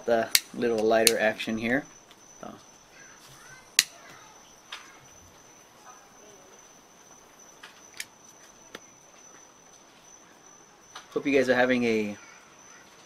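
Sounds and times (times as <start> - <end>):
crickets trilling: 0.0 - 13.0
lighter sparking clicks: 3.8 - 4.0.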